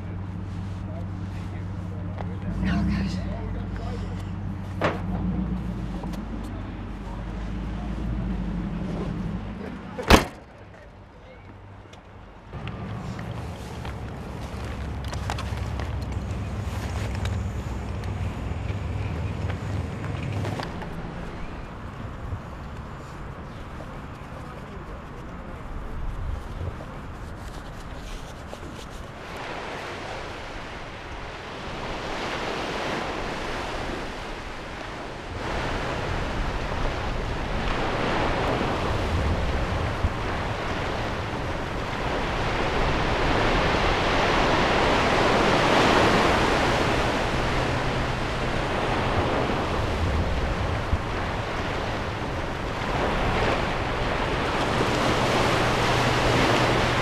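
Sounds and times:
wind rumbling on microphone: 0.0 - 10.2, 11.6 - 57.0
small waves washing in: 12.5 - 24.7, 25.5 - 57.0.

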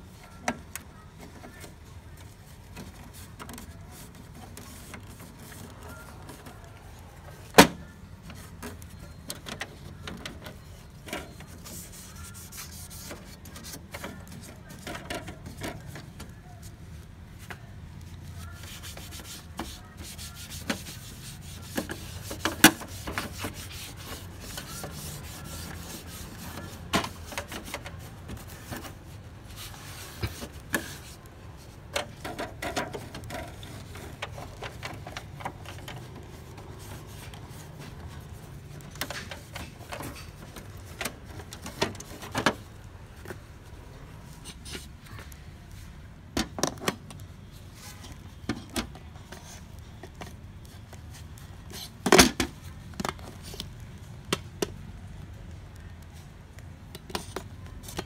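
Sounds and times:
plastic parts clicking and knocking: 0.3 - 16.6, 17.4 - 43.7, 46.3 - 58.0
tissue wiping plastic: 1.5 - 7.4, 10.6 - 16.8, 18.1 - 42.4.

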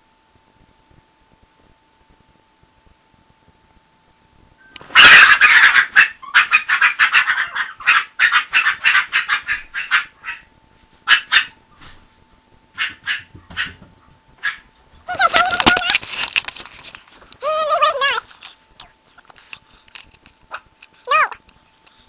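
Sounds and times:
puppy yapping: 4.9 - 10.5, 11.1 - 11.6, 12.8 - 13.8, 14.4 - 16.0.

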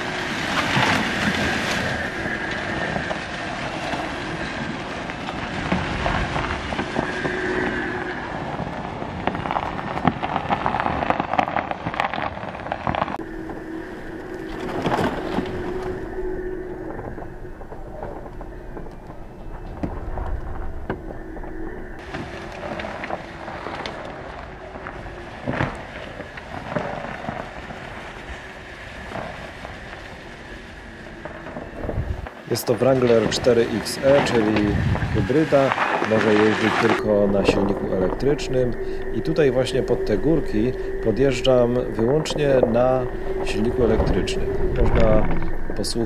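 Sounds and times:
crackles and clicks: 0.0 - 46.0
tyres crunching over snow: 0.0 - 46.0
faint steady hum: 13.2 - 35.4, 36.9 - 46.0.

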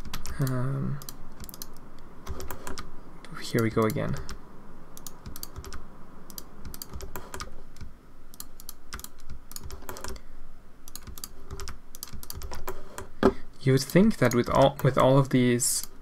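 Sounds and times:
keyboard keys clicking: 0.0 - 2.9, 5.0 - 10.2, 10.9 - 13.1
mouse buttons clicking: 0.0 - 2.9, 5.0 - 10.2.

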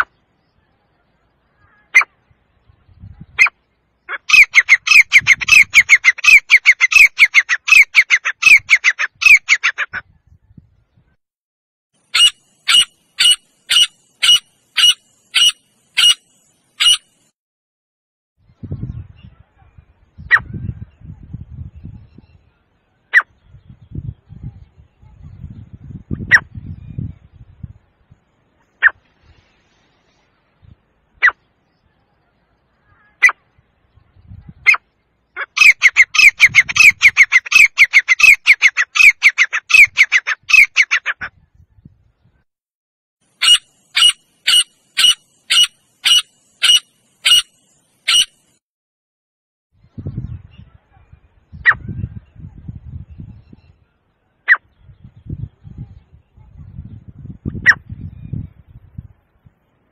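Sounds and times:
francolin calling: 3.4 - 9.8, 12.0 - 17.3, 34.7 - 41.2, 43.4 - 48.5.

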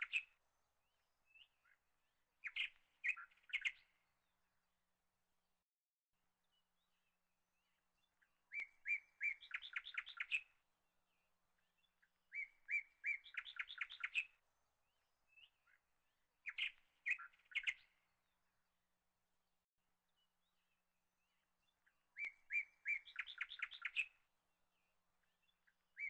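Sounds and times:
songbird singing: 0.0 - 4.7, 6.4 - 18.9, 20.0 - 26.0.

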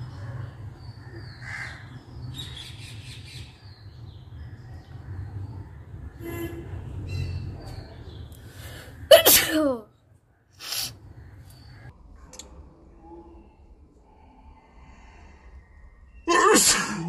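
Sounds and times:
woman sneezing: 9.1 - 9.8.

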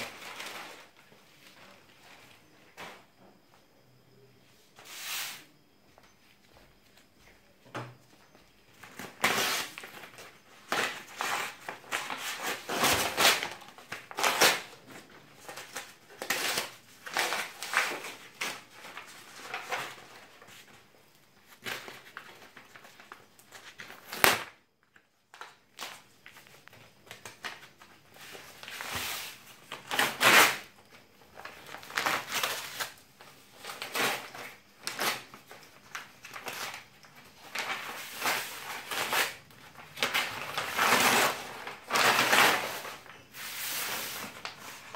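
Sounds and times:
paper tearing and crumpling: 9.2 - 9.9, 10.6 - 14.7, 40.0 - 44.9.

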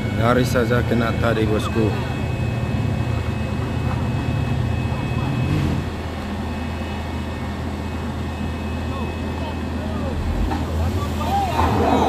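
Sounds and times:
vehicle engine running: 10.1 - 11.2.

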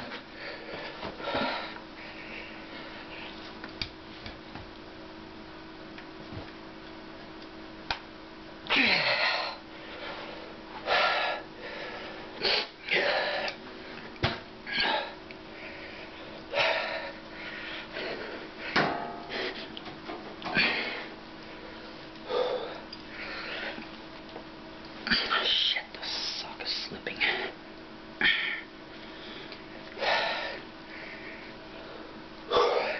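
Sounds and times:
steady hum: 0.0 - 32.9
man breathing hard and grunting: 8.7 - 13.6, 14.7 - 19.8, 22.2 - 23.8, 28.2 - 32.9.

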